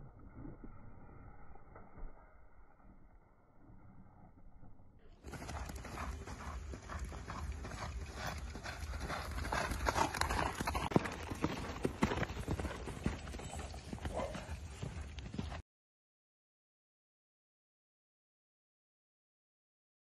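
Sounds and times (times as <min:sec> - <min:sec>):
horse hoofbeats on sand: 0:05.2 - 0:15.6.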